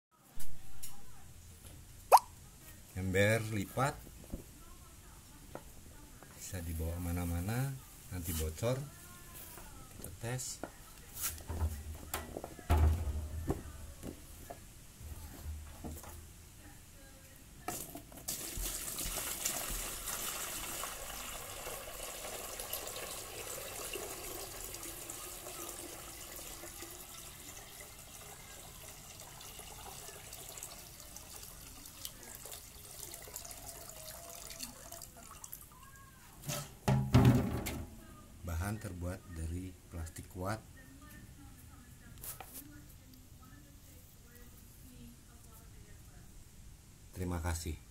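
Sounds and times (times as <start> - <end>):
bucket knocks: 11.5 - 13.7, 36.4 - 37.9
water pouring into bucket: 18.3 - 35.8.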